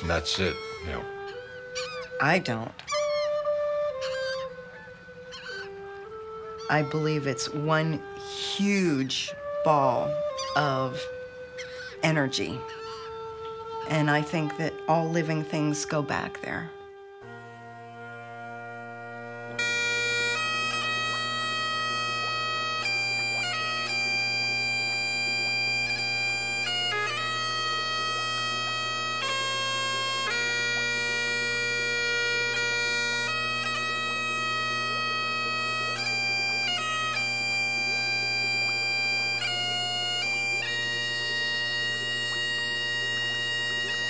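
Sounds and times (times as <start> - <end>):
bagpipe playing slow tune: 0.0 - 44.0.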